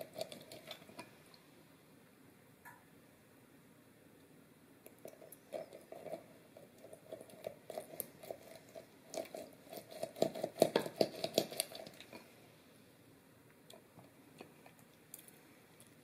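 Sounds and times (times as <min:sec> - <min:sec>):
lemon crushed on juicer: 0:05.1 - 0:12.3.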